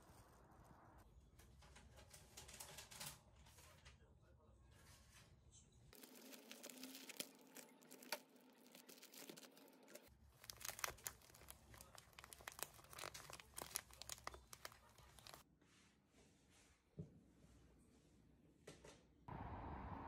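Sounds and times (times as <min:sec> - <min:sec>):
plastic bag crinkling: 0:06.0 - 0:15.4.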